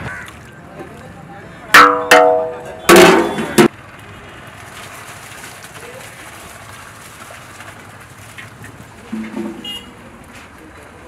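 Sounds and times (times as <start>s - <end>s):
metal ladle clanging on pot: 1.8s - 3.7s.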